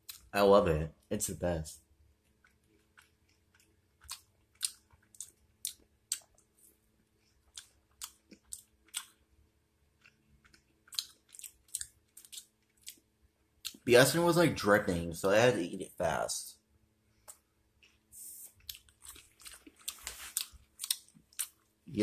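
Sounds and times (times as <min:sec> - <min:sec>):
person chewing with mouth smacks: 0:02.3 - 0:06.5, 0:07.2 - 0:09.2, 0:10.0 - 0:13.0, 0:17.2 - 0:21.6.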